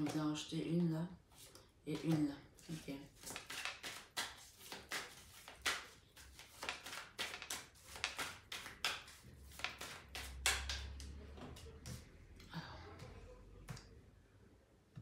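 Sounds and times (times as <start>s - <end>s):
cards being shuffled: 1.3s - 12.1s.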